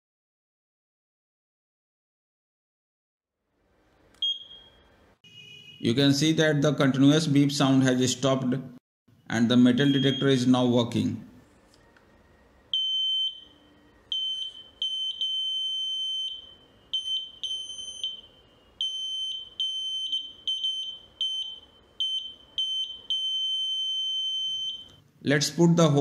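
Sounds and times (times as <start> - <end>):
metal detector beeping: 9.8 - 10.4.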